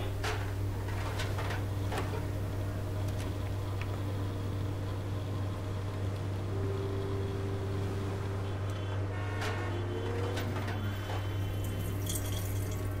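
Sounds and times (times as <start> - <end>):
low steady hum: 0.0 - 13.0
beer splashing: 11.6 - 13.0.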